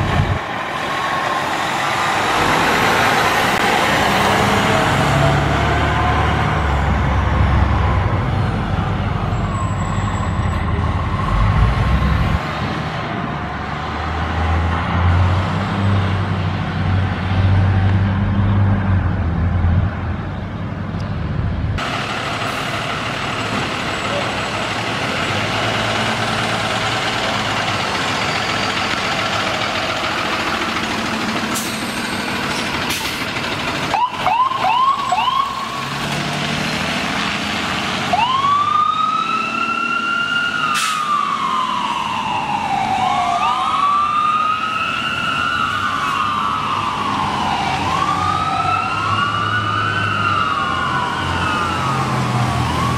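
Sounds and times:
truck engine and road noise: 0:00.0 - 0:52.9
ambulance siren wailing: 0:33.8 - 0:36.0, 0:38.0 - 0:52.9.

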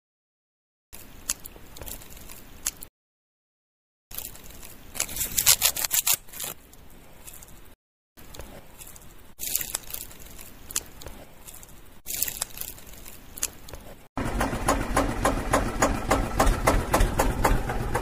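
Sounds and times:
leaf rustling: 0:04.1 - 0:07.8, 0:08.4 - 0:14.1.

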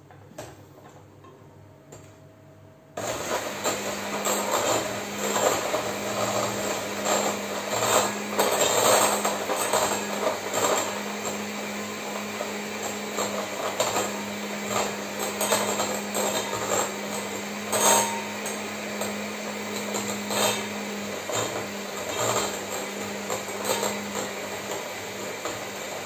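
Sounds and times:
electric hand mixer humming: 0:03.0 - 0:26.0.

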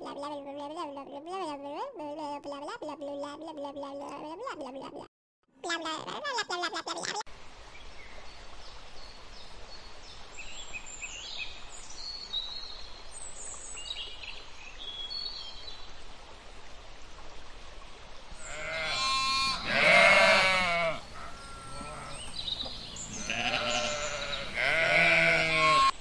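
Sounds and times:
farm animal bleating: 0:18.4 - 0:26.0.

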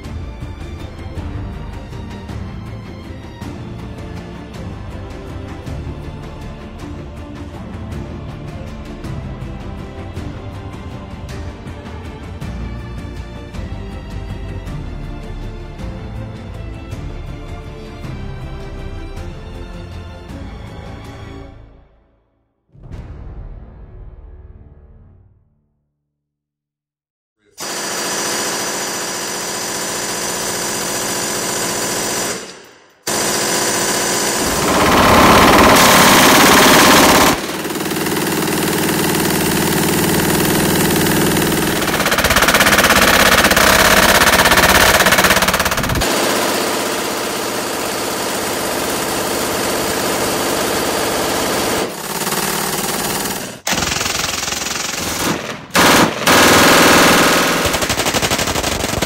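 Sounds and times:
machine guns firing long bursts: 0:27.6 - 0:59.0.

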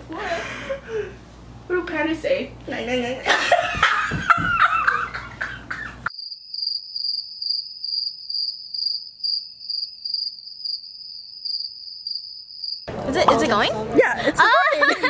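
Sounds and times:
loud laughter: 0:03.3 - 0:06.1, 0:14.0 - 0:15.0
cricket chirping: 0:06.1 - 0:12.9.

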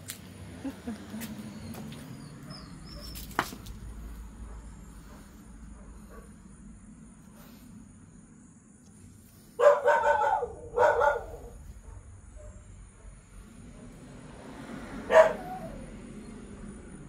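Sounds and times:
dog barking loudly: 0:09.6 - 0:12.6, 0:15.0 - 0:15.8.

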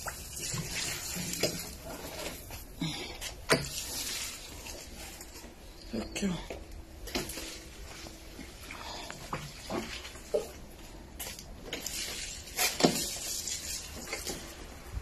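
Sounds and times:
water splashing on plant leaves: 0:00.0 - 0:01.8, 0:11.7 - 0:14.6.

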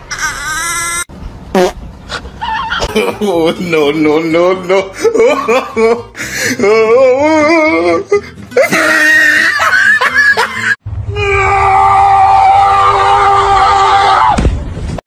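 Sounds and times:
person laughing and exclaiming: 0:02.4 - 0:11.7.

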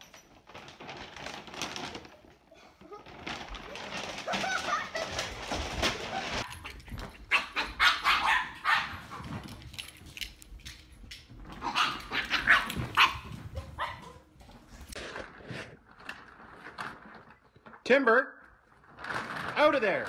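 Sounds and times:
dog barking: 0:07.3 - 0:09.2, 0:11.6 - 0:14.3.

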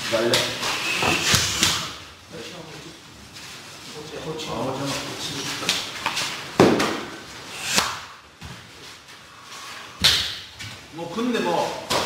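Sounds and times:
sharp slaps: 0:05.6 - 0:08.2, 0:10.0 - 0:10.5.

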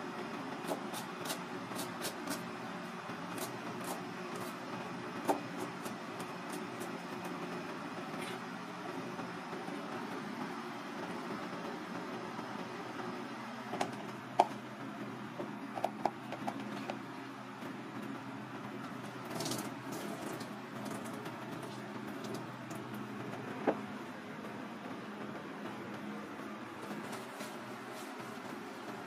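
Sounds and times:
low kitchen hum: 0:00.0 - 0:29.0.

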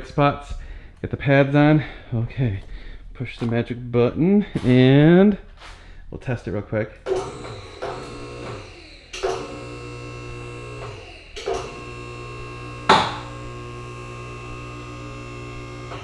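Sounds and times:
hydraulic power unit humming: 0:07.0 - 0:16.0.

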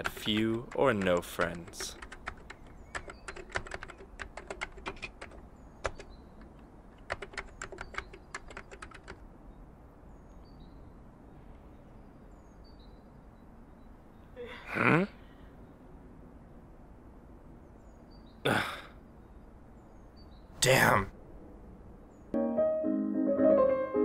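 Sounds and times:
keyboard typing: 0:00.0 - 0:09.2.

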